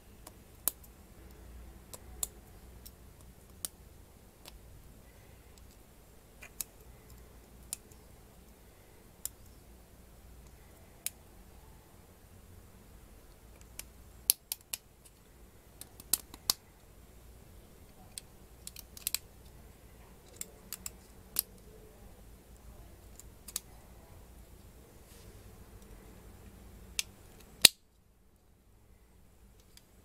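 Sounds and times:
plastic parts clicking: 0:15.8 - 0:16.6, 0:18.0 - 0:19.2.

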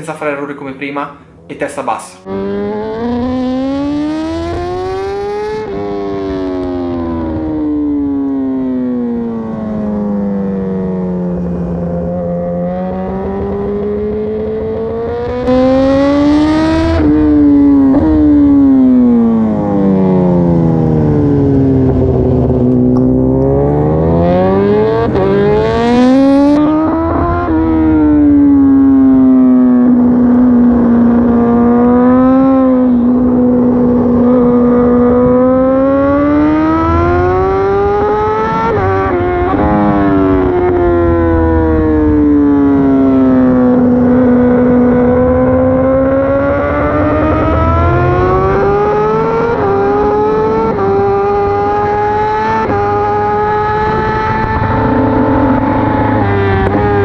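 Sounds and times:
motorcycle engine revving: 0:01.2 - 0:57.0.

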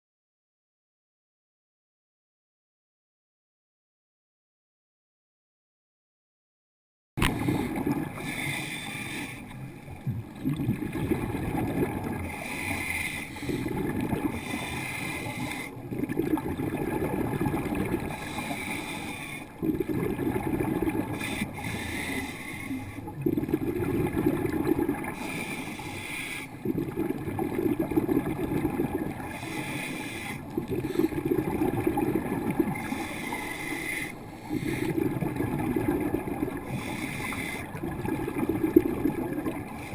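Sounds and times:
gurgling bubble bursts: 0:07.2 - 0:08.3, 0:10.0 - 0:12.5, 0:13.6 - 0:14.7, 0:15.7 - 0:18.3, 0:19.6 - 0:21.3, 0:23.1 - 0:25.3, 0:26.6 - 0:29.5, 0:30.4 - 0:33.0, 0:34.5 - 0:37.0, 0:37.6 - 0:39.9
regulator inhale hiss: 0:07.2 - 0:09.9, 0:12.3 - 0:13.7, 0:14.3 - 0:15.8, 0:18.1 - 0:19.6, 0:21.1 - 0:23.2, 0:25.1 - 0:26.6, 0:29.2 - 0:31.2, 0:32.7 - 0:35.0, 0:36.6 - 0:37.8.

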